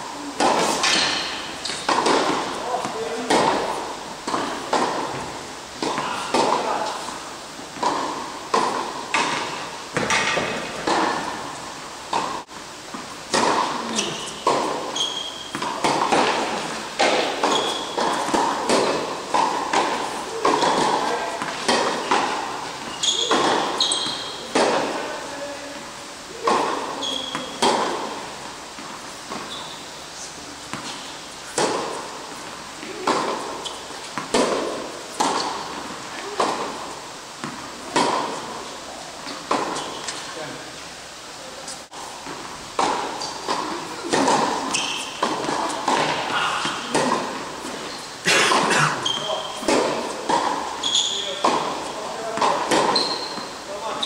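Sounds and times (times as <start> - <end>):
shoes squeaking on court: 0.2 - 25.7, 26.4 - 36.7, 37.4 - 40.5, 41.6 - 54.0
ball bouncing on court: 0.4 - 6.9, 7.8 - 11.3, 12.1 - 25.0, 48.5 - 54.0.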